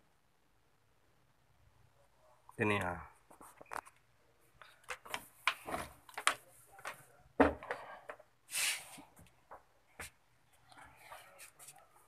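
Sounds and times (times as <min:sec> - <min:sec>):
short hiss: 0:08.5 - 0:09.0.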